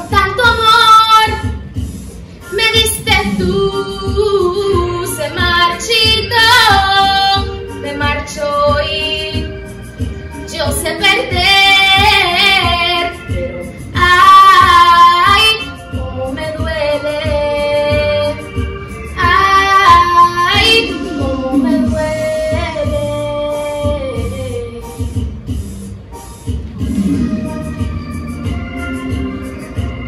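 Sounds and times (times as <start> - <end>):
girl singing with vibrato: 0.0 - 1.6, 2.4 - 9.6, 10.5 - 18.5, 19.2 - 24.9
backing track with low beat: 0.0 - 30.0.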